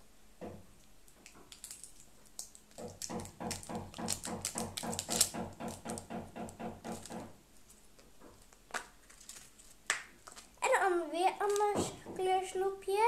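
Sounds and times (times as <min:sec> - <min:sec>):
plastic egg snapping open: 0:01.2 - 0:06.1, 0:08.0 - 0:10.5.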